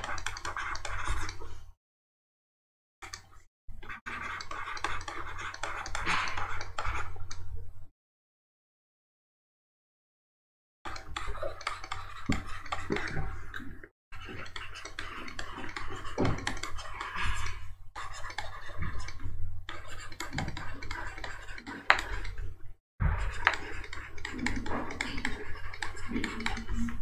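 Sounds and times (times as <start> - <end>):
stylus scratching on pen tablet: 0.0 - 1.6, 3.8 - 7.2, 10.9 - 13.2, 14.2 - 27.0.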